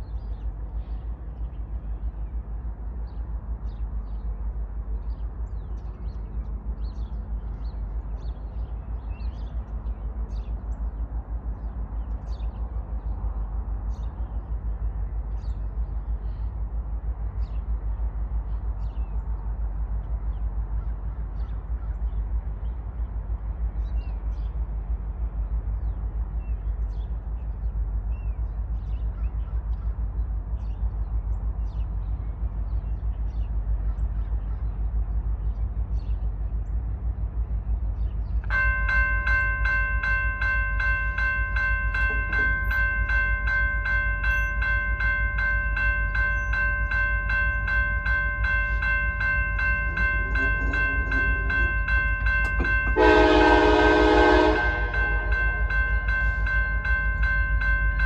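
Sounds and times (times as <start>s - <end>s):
crossing signal bell ringing: 38.5s - 58.0s
locomotive horn blast: 52.5s - 55.7s.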